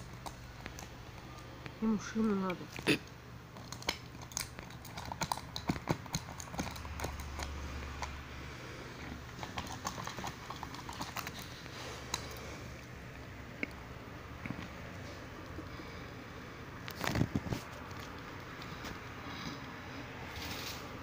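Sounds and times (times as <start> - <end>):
ferret teeth clicking on lid: 3.6 - 8.2.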